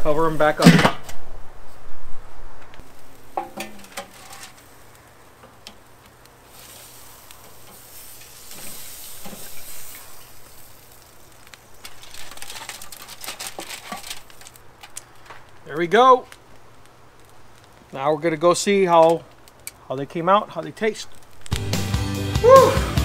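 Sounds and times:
fish sizzling in butter: 0:02.8 - 0:19.6.

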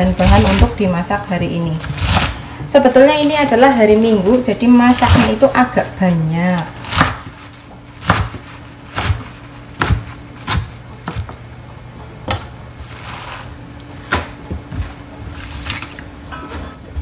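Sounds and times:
steady low hum: 0:00.0 - 0:17.0
knife chopping on cutting board: 0:06.8 - 0:07.4, 0:08.0 - 0:11.4.

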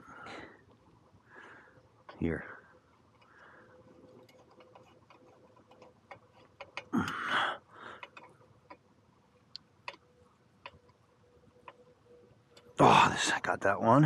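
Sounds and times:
screwdriver clicking on clamps: 0:04.1 - 0:07.2.

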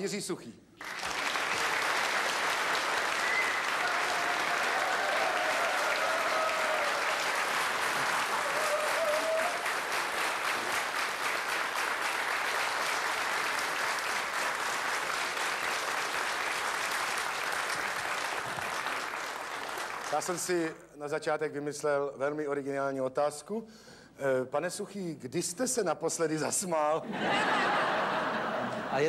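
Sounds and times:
audience applauding: 0:00.8 - 0:20.8.

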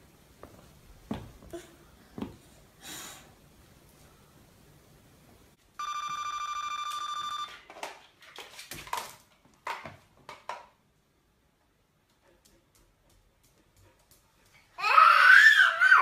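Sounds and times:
electronic ring tone: 0:05.8 - 0:07.6.

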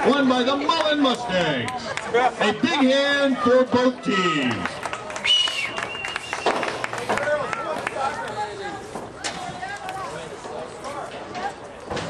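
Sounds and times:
crowd clapping: 0:00.7 - 0:02.4, 0:03.8 - 0:08.6.

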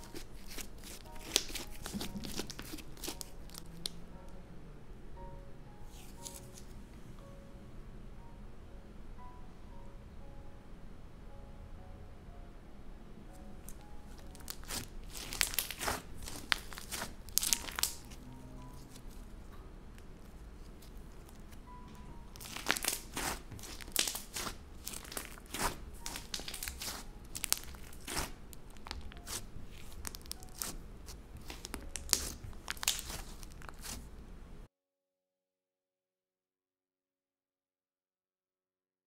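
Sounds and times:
slime kneaded by hand: 0:00.0 - 0:04.0, 0:13.6 - 0:19.3, 0:20.0 - 0:34.2.

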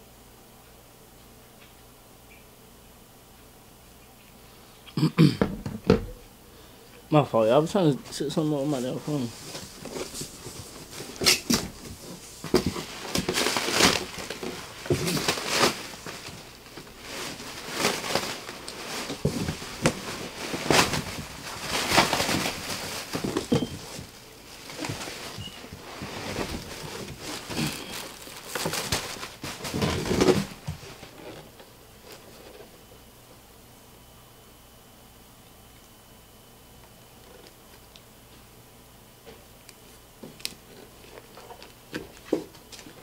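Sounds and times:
things being handled: 0:08.0 - 0:32.7.

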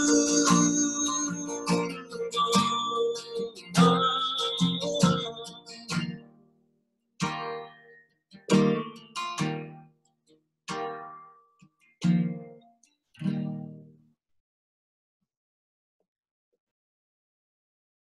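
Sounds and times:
acoustic guitar strums: 0:00.0 - 0:06.3, 0:07.2 - 0:09.8, 0:10.7 - 0:11.4, 0:12.0 - 0:12.6, 0:13.2 - 0:13.9.

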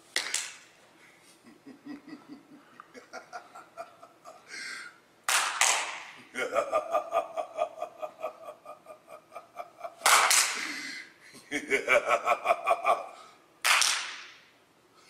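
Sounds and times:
man laughing: 0:01.3 - 0:04.8, 0:06.3 - 0:13.4.

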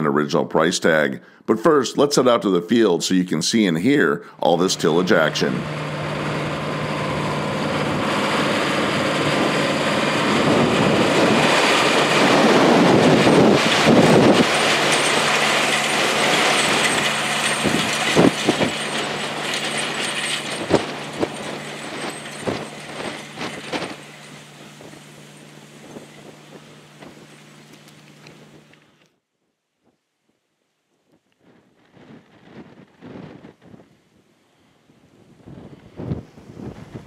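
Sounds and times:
tractor engine drone: 0:02.0 - 0:29.2.

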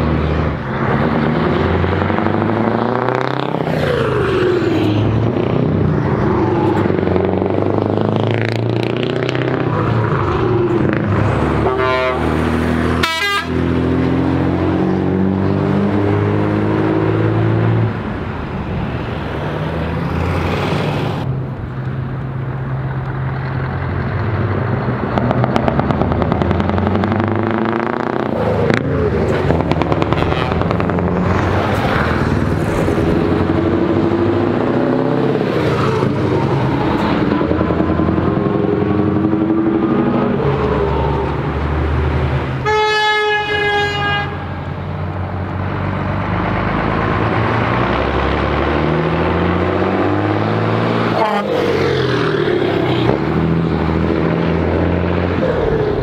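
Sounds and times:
trucks driving past: 0:00.0 - 0:56.0
truck horn: 0:11.4 - 0:14.0, 0:30.0 - 0:31.0, 0:42.6 - 0:44.8, 0:51.0 - 0:51.9.

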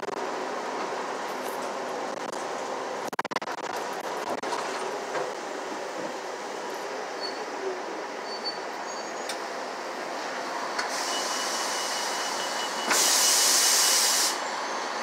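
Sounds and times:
bus running and road noise: 0:00.0 - 0:15.0
compressed air hiss: 0:12.9 - 0:14.4.

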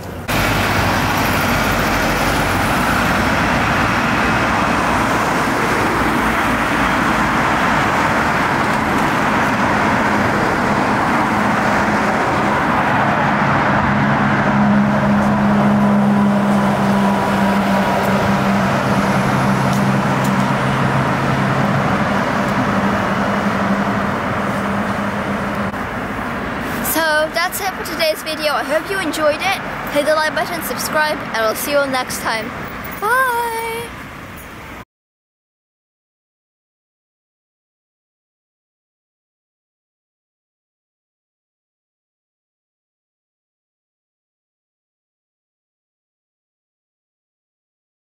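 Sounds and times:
low engine hum: 0:00.0 - 0:34.8
road traffic passing: 0:00.0 - 0:34.8.

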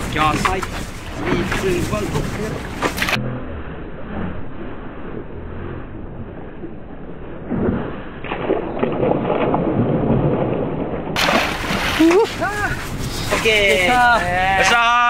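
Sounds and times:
loud splashing and churning water: 0:00.0 - 0:03.2, 0:07.4 - 0:14.6
boat noise: 0:00.0 - 0:15.0
low wind: 0:00.0 - 0:15.0
fish hitting the water: 0:08.2 - 0:13.6.

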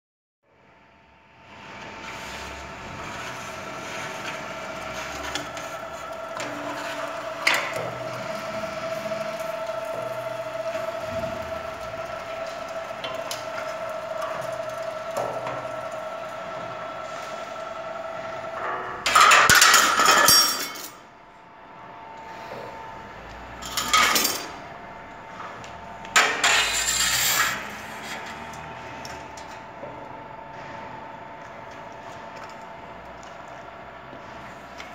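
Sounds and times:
roll-forming machine whine: 0:00.5 - 0:34.9
metal scraping and clattering: 0:26.1 - 0:29.6.

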